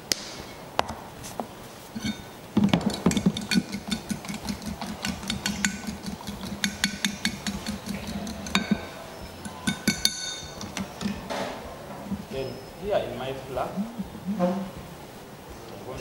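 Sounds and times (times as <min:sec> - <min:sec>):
fork tapping bowl: 0:02.0 - 0:11.2
fork whisking egg in bowl: 0:02.0 - 0:11.2.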